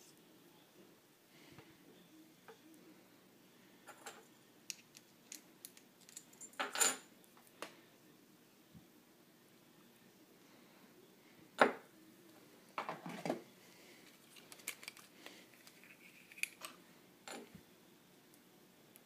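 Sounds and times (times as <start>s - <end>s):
objects rubbing and clacking: 14.0s - 17.5s.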